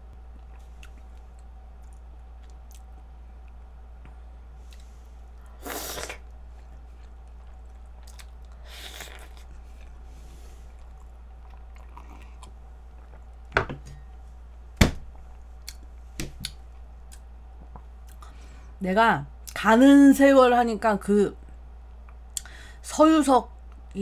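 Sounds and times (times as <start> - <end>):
soft chewing: 0.1 - 14.6, 15.2 - 18.4.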